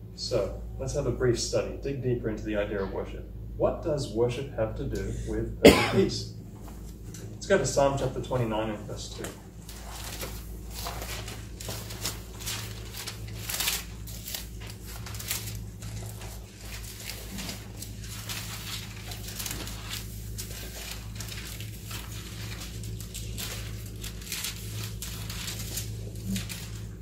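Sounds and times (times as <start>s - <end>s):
low electrical hum: 0.0s - 27.0s
pages being turned: 8.9s - 27.0s.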